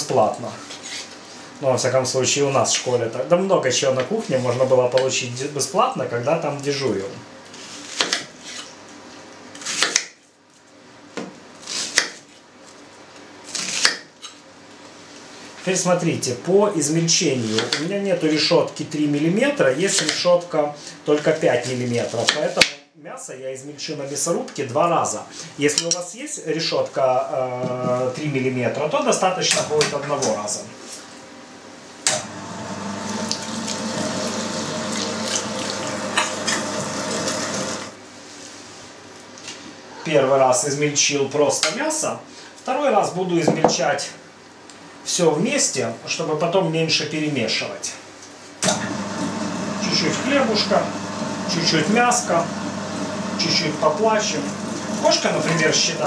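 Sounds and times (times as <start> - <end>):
knife slicing onion: 9.5 - 10.1, 13.5 - 14.1
electric meat grinder running: 32.2 - 38.0, 48.6 - 56.0.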